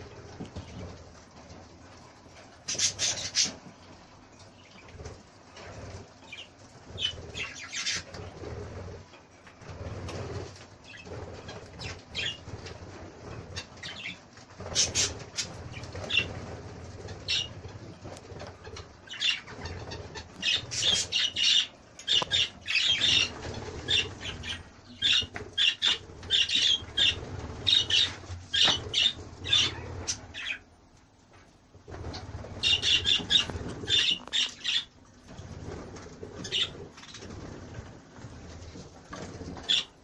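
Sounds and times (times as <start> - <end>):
wings fluttering: 0.0 - 40.0
budgerigars chirping: 7.0 - 8.2, 17.0 - 17.6, 18.3 - 30.6, 32.1 - 34.9, 36.4 - 37.2, 39.5 - 40.0.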